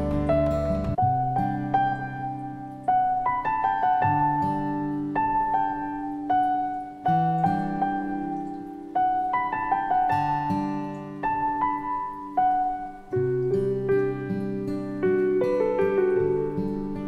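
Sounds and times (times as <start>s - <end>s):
slow gentle piano music: 0.0s - 17.0s.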